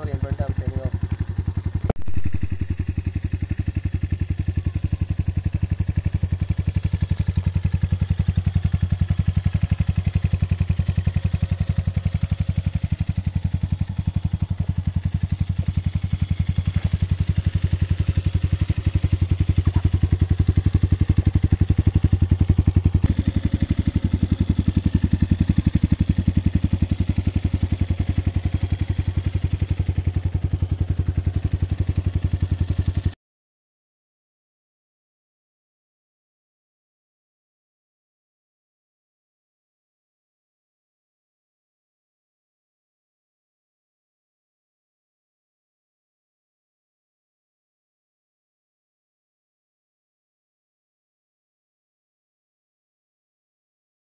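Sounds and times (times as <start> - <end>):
motorcycle engine idling: 0.0 - 33.2.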